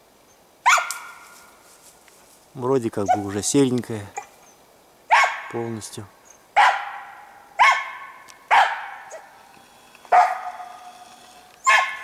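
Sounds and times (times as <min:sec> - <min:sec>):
dog barking with echo: 0:05.1 - 0:05.5, 0:06.6 - 0:09.3, 0:10.1 - 0:10.7, 0:11.6 - 0:12.0.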